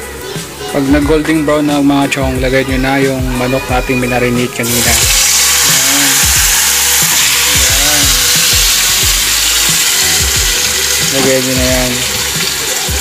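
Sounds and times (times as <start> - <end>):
chicken sizzling in hot oil: 4.6 - 13.0.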